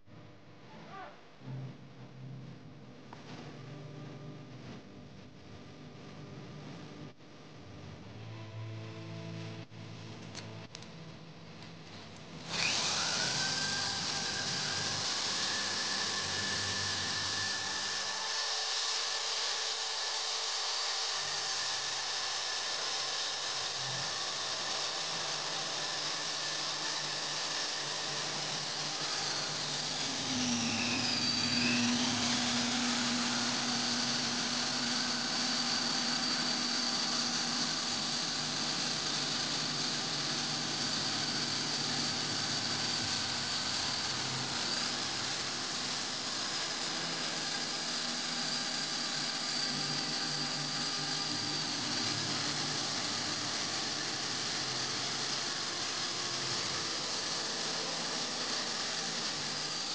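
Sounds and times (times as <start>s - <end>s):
electric drill motor whine: 12.4s - 59.9s.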